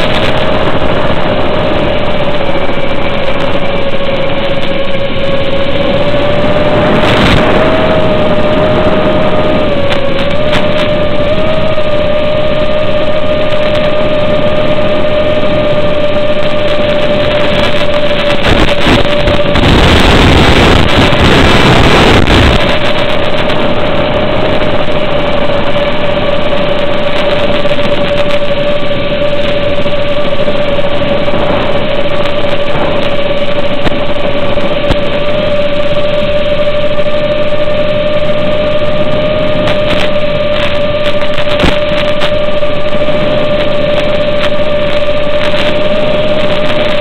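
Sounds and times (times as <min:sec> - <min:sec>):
steady whine: 0:00.0 - 0:47.0
static hiss: 0:16.4 - 0:23.8, 0:39.5 - 0:47.0.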